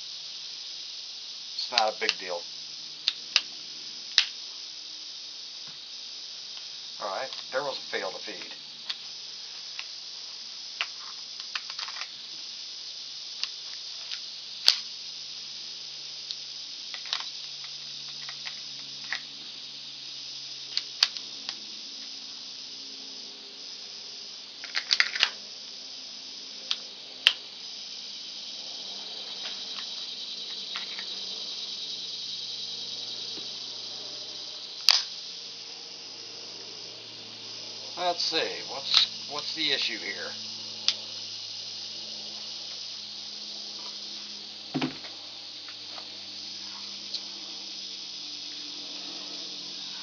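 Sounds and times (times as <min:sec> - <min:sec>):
steady high hiss: 0:00.0 - 0:50.0
pistol clicking being handled: 0:34.9 - 0:35.1.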